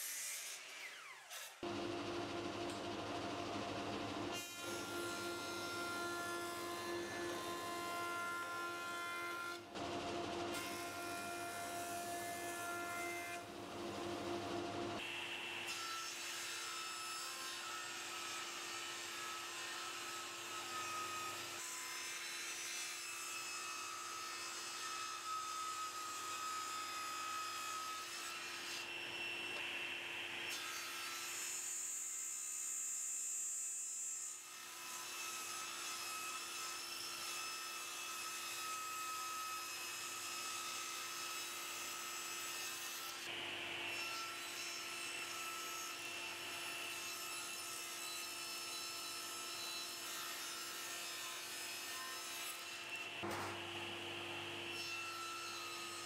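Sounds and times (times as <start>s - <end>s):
table saw humming: 1.6s - 15.0s, 52.9s - 56.0s
saw blade cutting wood: 2.4s - 13.5s.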